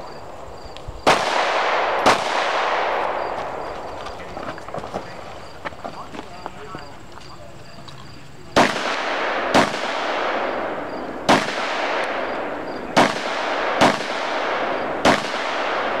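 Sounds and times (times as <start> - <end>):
pistol shots with echo: 0.0 - 4.2, 8.5 - 16.0.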